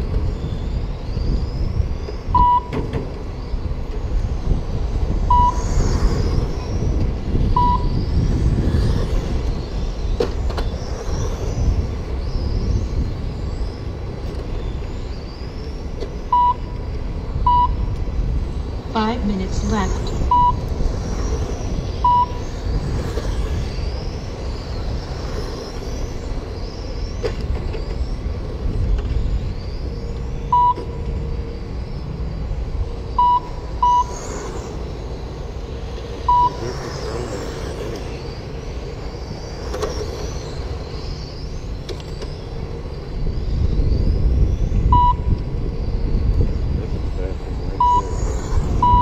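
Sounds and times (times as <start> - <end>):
electric motors whining: 0.0 - 49.0
wind rumble on microphone: 0.0 - 49.0
short electronic beeps: 2.4 - 2.8, 5.3 - 5.6, 7.6 - 8.0, 16.3 - 16.8, 17.5 - 17.8, 20.3 - 20.6, 22.0 - 22.4, 30.5 - 30.9, 33.2 - 34.2, 36.2 - 36.6, 44.9 - 45.3, 47.8 - 48.1.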